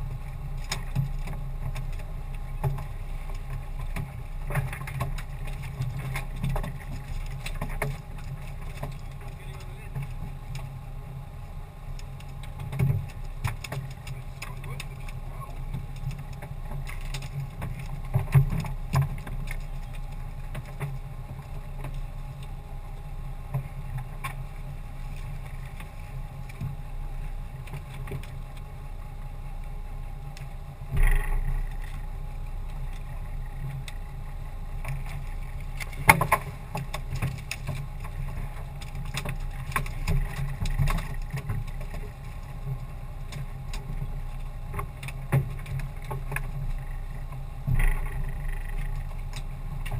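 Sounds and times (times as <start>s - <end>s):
steady low hum: 0.0s - 49.9s.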